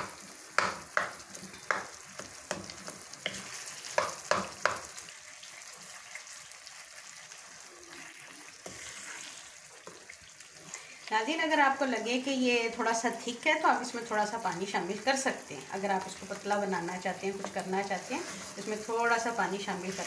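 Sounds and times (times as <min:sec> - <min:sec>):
food sizzling: 0:00.0 - 0:20.0
wooden spoon scraping a pan: 0:01.0 - 0:04.8, 0:07.9 - 0:10.9, 0:17.2 - 0:20.0.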